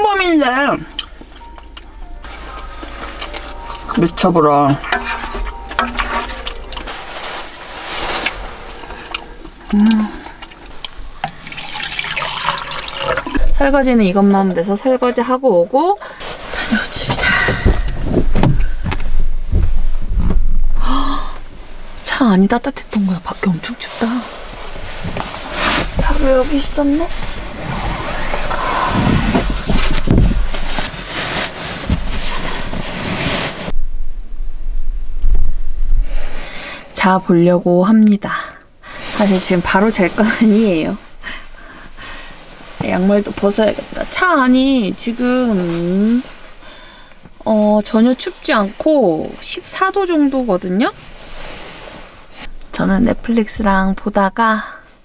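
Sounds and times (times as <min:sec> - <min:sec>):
fabric rustling: 0:00.7 - 0:20.7, 0:21.7 - 0:33.8, 0:38.9 - 0:53.4
water pouring into metal pot: 0:08.2 - 0:13.6
dull thumps: 0:17.0 - 0:20.8, 0:28.3 - 0:30.9.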